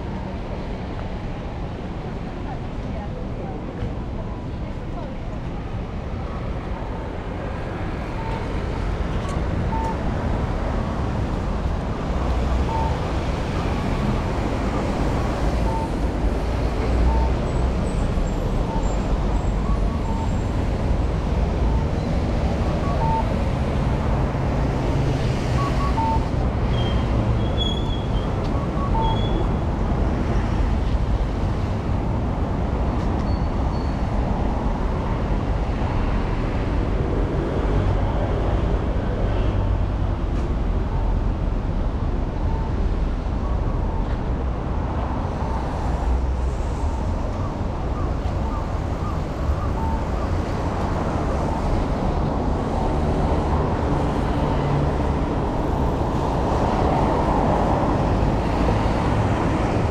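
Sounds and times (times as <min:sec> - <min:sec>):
traffic on wet road: 0:00.0 - 0:59.9
faint short beep: 0:09.7 - 0:10.0, 0:12.7 - 0:13.0, 0:25.6 - 0:26.3.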